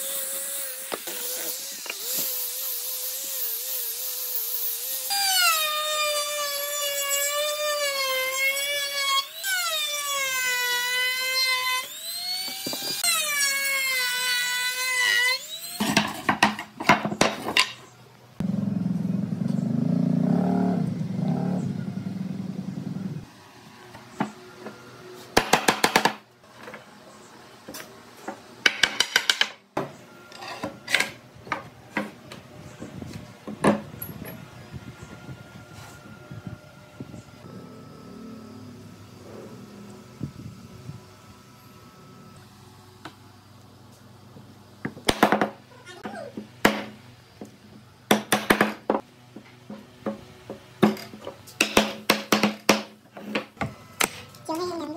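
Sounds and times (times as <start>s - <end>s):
low steady rumble: 18.4s - 23.3s.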